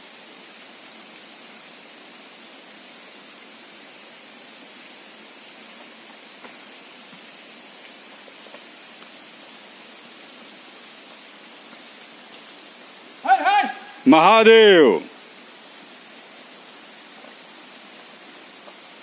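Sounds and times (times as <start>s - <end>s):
steady hiss: 0.0s - 19.0s.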